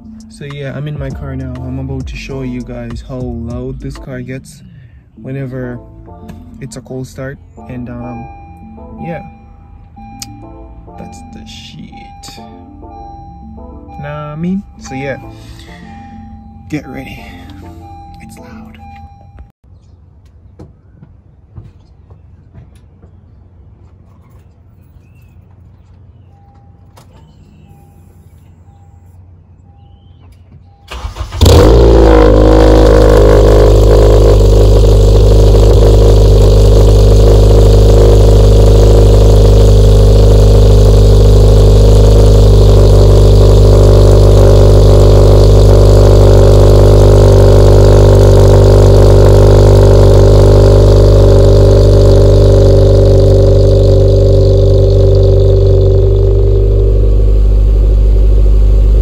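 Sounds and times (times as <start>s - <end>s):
car engine cranking: 29.8s - 59.0s
car engine idling: 30.8s - 59.0s.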